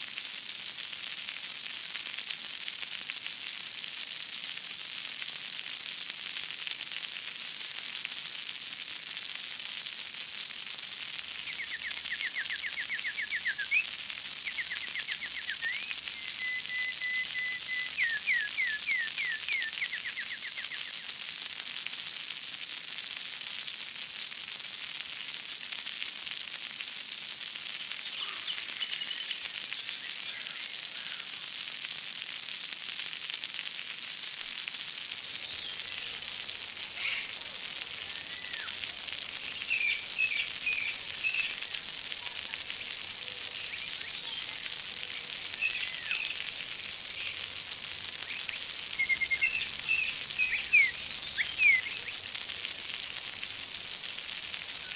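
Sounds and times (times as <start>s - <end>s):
running water splashing: 0.1s - 54.9s
bird chirps: 48.3s - 52.2s.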